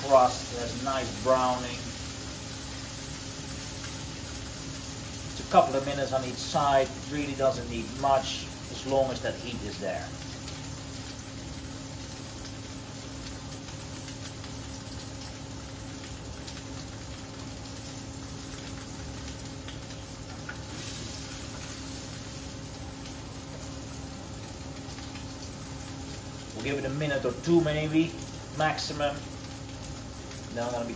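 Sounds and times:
steak sizzling in a frying pan: 0:00.0 - 0:30.9.

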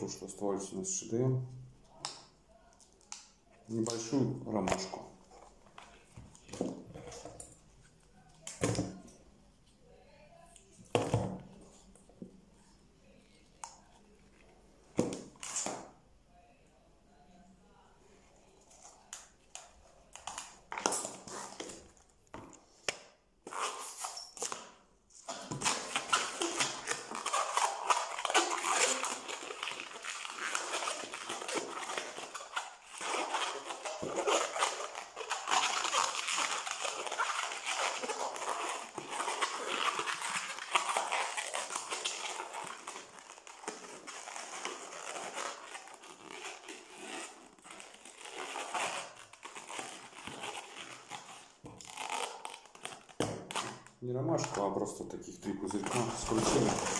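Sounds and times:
balloon squeaking and rubbing: 0:15.0 - 0:16.0, 0:19.6 - 0:22.1, 0:23.4 - 0:54.7, 0:55.5 - 0:56.9.

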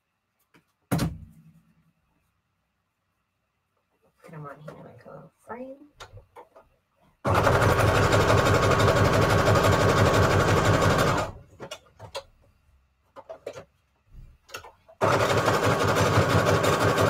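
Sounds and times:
sewing machine stitching: 0:07.3 - 0:11.4, 0:15.0 - 0:17.0.

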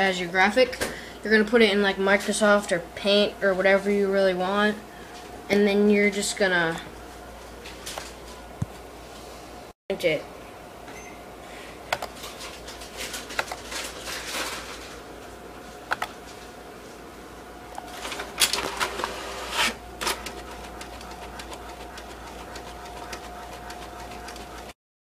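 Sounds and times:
inkjet printer printing: 0:17.9 - 0:24.8.

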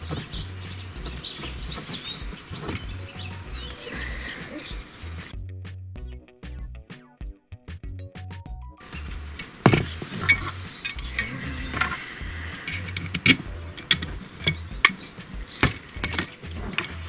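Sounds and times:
steel parts clinking and knocking: 0:02.6 - 0:03.2, 0:08.8 - 0:17.0.

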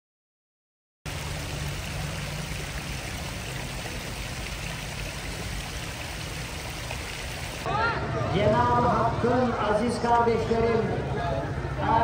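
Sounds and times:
fountain water splashing into basin: 0:01.1 - 0:07.7.

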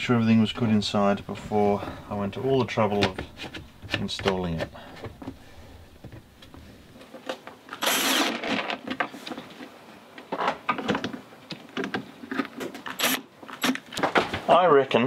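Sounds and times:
clicks and handling of plastic case: 0:02.9 - 0:05.4
cordless drill driving screws: 0:07.8 - 0:08.6, 0:12.9 - 0:13.8.

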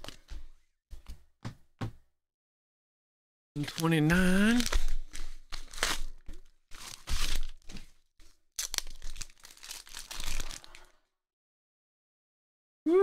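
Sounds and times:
padded mailer tearing and crumpling: 0:03.6 - 0:07.9, 0:08.6 - 0:10.9.

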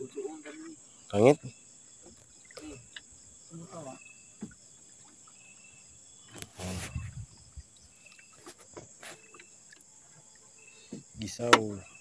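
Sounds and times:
crickets chirring: 0:00.0 - 0:12.0
knocks in wooden boat: 0:11.0 - 0:11.8.

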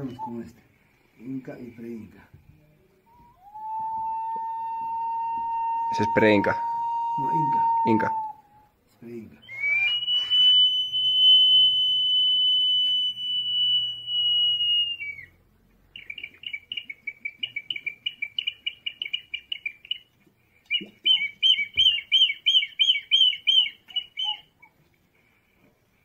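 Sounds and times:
ceramic whistle jar whistling: 0:00.0 - 0:00.5, 0:03.1 - 0:08.7, 0:09.4 - 0:15.3, 0:20.7 - 0:24.4
warbling whistle trill: 0:03.1 - 0:08.6, 0:09.4 - 0:15.3.

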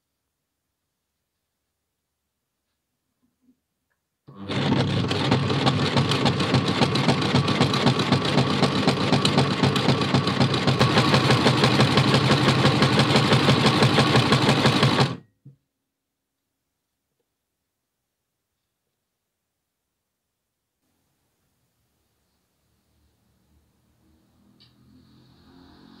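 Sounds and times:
sewing machine stitching: 0:04.3 - 0:15.2.

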